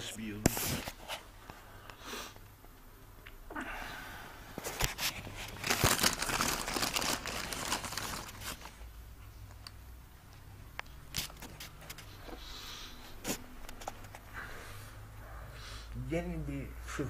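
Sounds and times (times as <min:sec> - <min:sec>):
plastic bag crinkling: 0:04.6 - 0:08.8.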